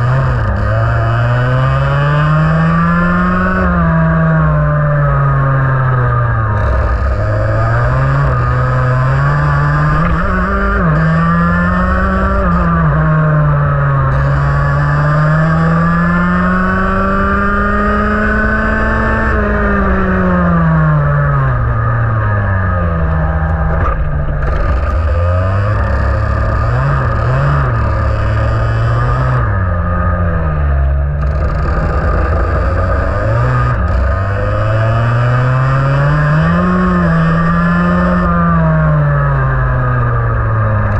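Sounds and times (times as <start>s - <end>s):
kart engine revving: 0.0s - 40.9s.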